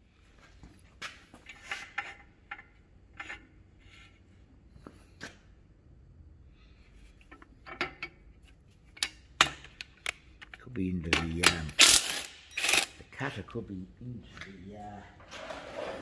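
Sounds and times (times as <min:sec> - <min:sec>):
metal scraping: 0:15.2 - 0:16.0.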